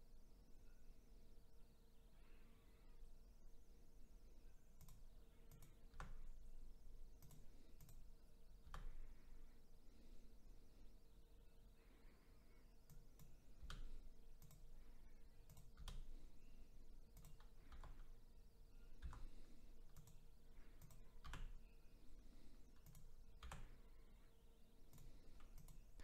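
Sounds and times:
faint steady hum: 0.0 - 26.0
computer keyboard clicks: 4.8 - 6.4, 7.1 - 9.0, 12.9 - 14.8, 15.4 - 16.2, 17.1 - 18.2, 19.0 - 21.6, 22.7 - 23.8, 24.9 - 26.0.

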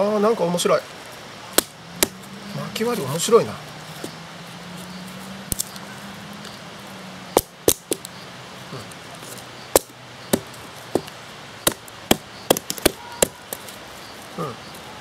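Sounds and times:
hatchet chopping wood: 1.5 - 2.2, 7.3 - 8.1, 9.7 - 13.7.

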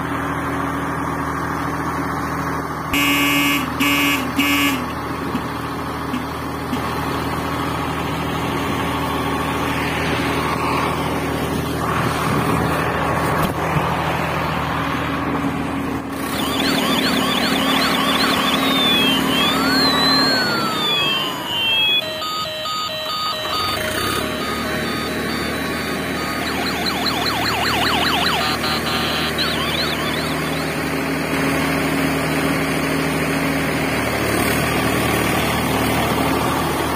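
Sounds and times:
fast warbling siren: 16.1 - 31.4
buzzing toy engine drone: 16.2 - 30.9
sweeping whistle-like tones: 16.3 - 30.8.

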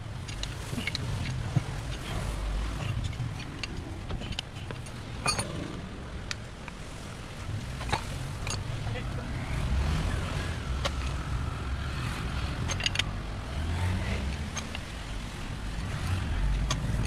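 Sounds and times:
wrench clicking on bolts: 12.6 - 13.1.

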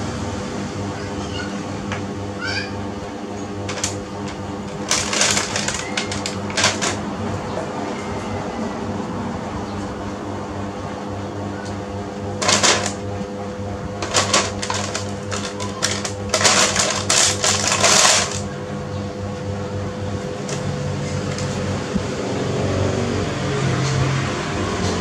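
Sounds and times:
steady low hum: 0.0 - 25.0
plastic baby walker rattling: 4.8 - 7.0, 12.4 - 13.0, 14.0 - 18.4
plastic sheet crinkling: 4.8 - 7.0, 12.4 - 13.0, 14.0 - 18.5.

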